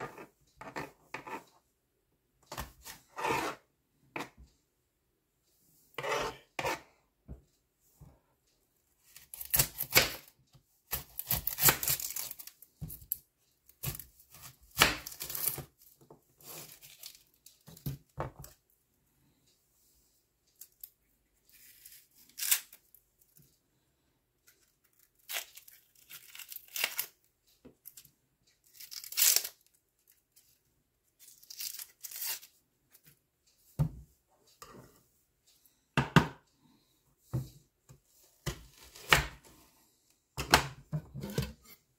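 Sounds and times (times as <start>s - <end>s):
onion skin tearing and rustling: 10.9s - 12.5s, 24.9s - 27.1s, 28.7s - 29.6s, 31.2s - 32.5s.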